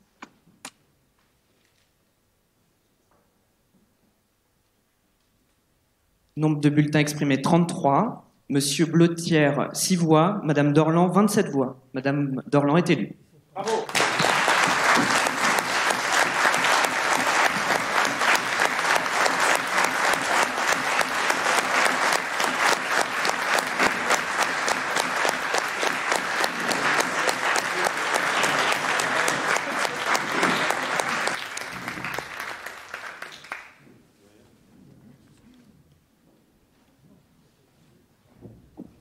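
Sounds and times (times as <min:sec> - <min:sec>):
crowd applauding: 0:13.6 - 0:33.8.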